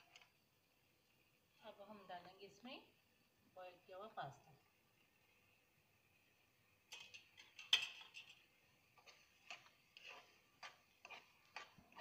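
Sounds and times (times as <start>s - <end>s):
spoon scraping and knocking a pan: 6.9s - 12.0s.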